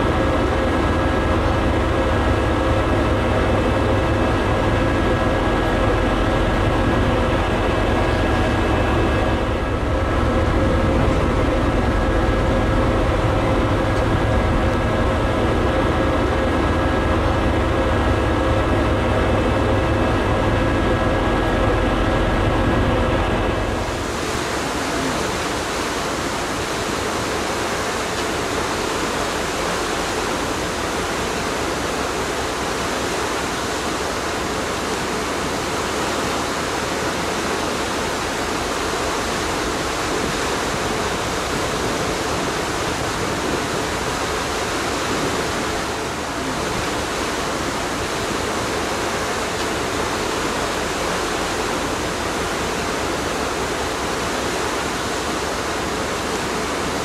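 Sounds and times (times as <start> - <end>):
ferry engine low rumble: 0.0 - 57.0
wind and water rushing: 0.0 - 57.0.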